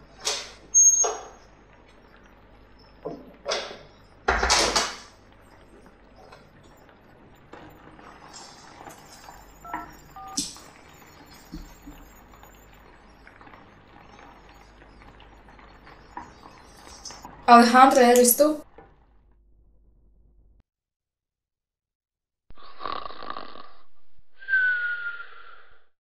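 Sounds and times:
phone keypad tones: 0:05.6 - 0:12.8.

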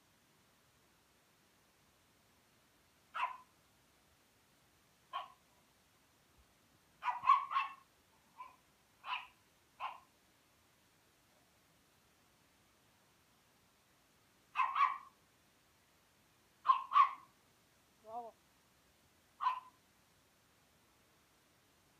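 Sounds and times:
dog barking: 0:03.1 - 0:03.5, 0:05.1 - 0:05.4, 0:07.0 - 0:07.8, 0:08.4 - 0:10.1, 0:14.6 - 0:15.2, 0:16.6 - 0:17.3, 0:19.4 - 0:19.8.

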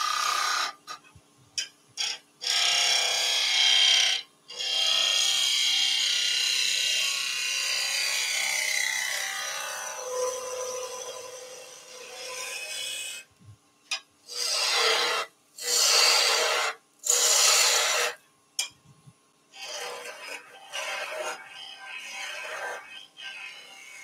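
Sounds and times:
loud rasping strokes: 0:14.3 - 0:18.2
tool scraping wood on lathe: 0:14.3 - 0:18.2, 0:19.6 - 0:21.4.

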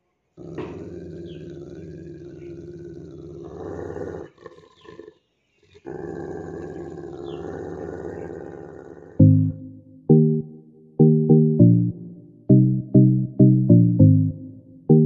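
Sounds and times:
dog growling low: 0:00.4 - 0:05.2, 0:05.8 - 0:09.2
loud music note: 0:09.2 - 0:15.0.

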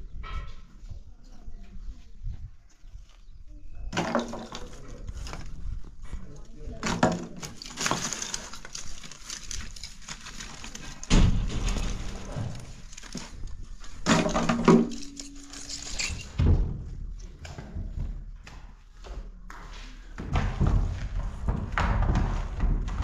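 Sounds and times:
wood clattering into wheelbarrow: 0:03.9 - 0:05.8, 0:06.7 - 0:18.1.

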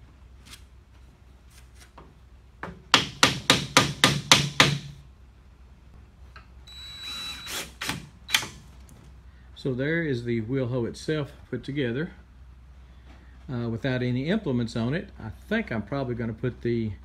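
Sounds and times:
hammer striking wood: 0:02.6 - 0:05.0.

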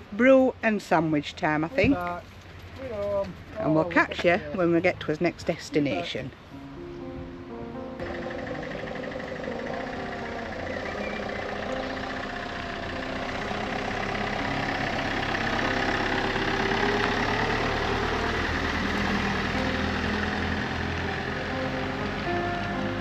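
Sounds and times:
van engine running: 0:08.0 - 0:23.0.

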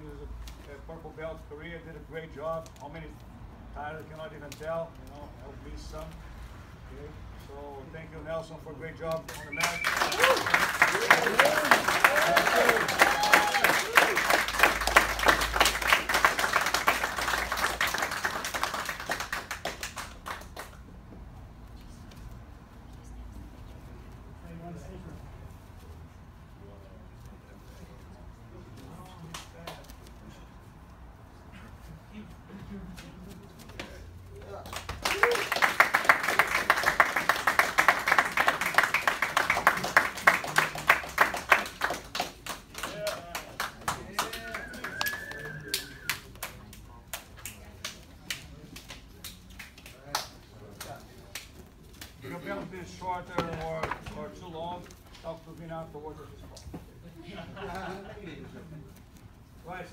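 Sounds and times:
people clapping: 0:09.2 - 0:21.1, 0:29.1 - 0:29.9, 0:34.4 - 0:52.6, 0:53.3 - 0:54.2
people applauding: 0:09.3 - 0:20.8, 0:34.6 - 0:51.5.

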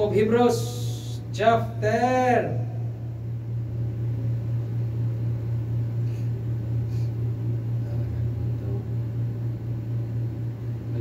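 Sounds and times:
low hum: 0:00.0 - 0:11.0.

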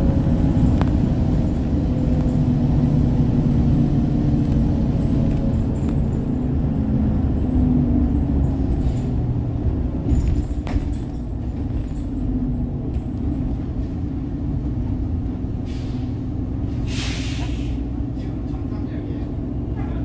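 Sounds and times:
bus engine drone: 0:00.0 - 0:20.0
road rumble: 0:00.0 - 0:20.0
short hiss: 0:16.9 - 0:17.8.

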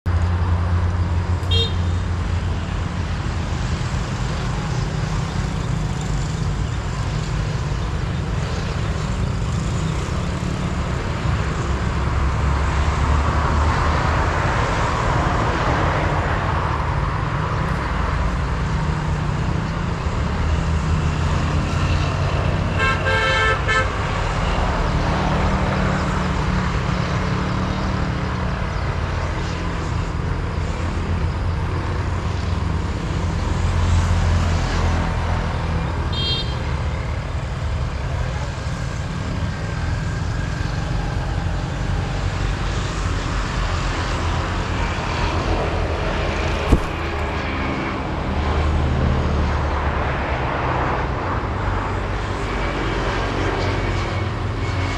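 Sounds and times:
road traffic rumble: 0:00.0 - 0:54.9
vehicle horn: 0:01.4 - 0:02.0, 0:22.7 - 0:24.1, 0:36.1 - 0:36.7.

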